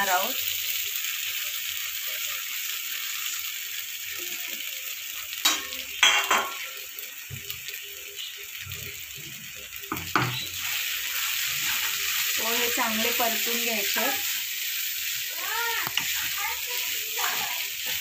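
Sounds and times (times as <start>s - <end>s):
oil sizzling in a pan: 0.0s - 18.0s
utensils knocking against pan: 5.4s - 6.6s, 9.9s - 10.6s
wooden spatula stirring: 15.2s - 18.0s.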